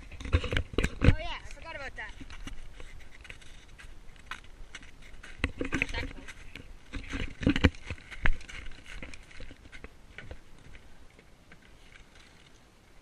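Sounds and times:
footsteps on snow and wooden deck: 1.1s - 11.7s.

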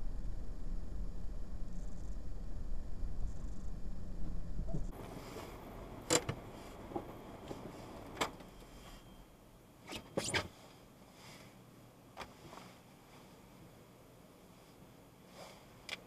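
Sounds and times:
low rumble: 0.0s - 9.2s
faint hum: 0.0s - 16.0s.

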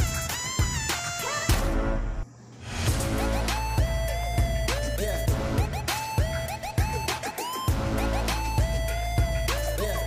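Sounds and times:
music with heavy bass: 2.9s - 10.0s.

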